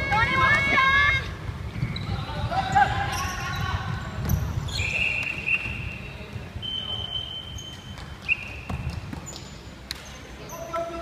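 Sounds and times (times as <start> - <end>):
thudding footsteps of players running: 0.0 - 6.6, 7.8 - 9.6
sneakers squeaking on wooden floor: 0.0 - 10.8.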